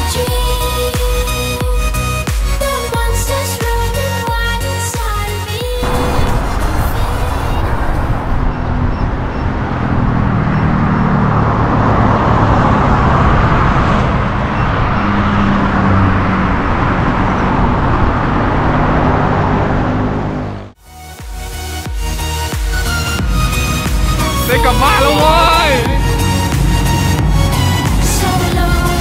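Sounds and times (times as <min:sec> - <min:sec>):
vehicles rushing on road: 0:05.8 - 0:20.8, 0:22.0 - 0:29.0.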